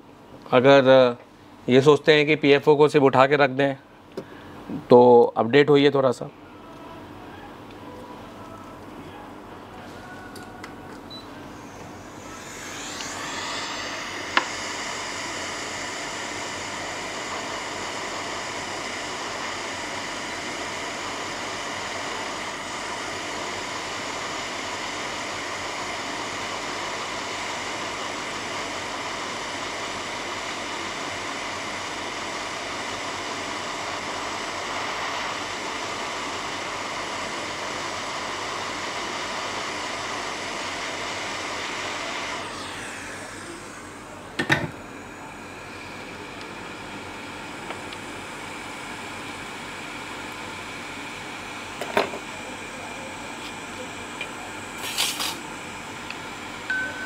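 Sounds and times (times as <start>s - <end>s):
hot air blower rushing: 11.4s - 57.0s.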